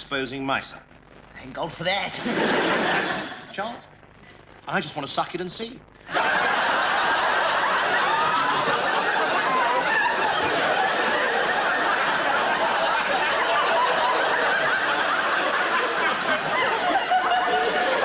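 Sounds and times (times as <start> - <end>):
audience laughing: 2.2 - 3.6, 6.1 - 18.0.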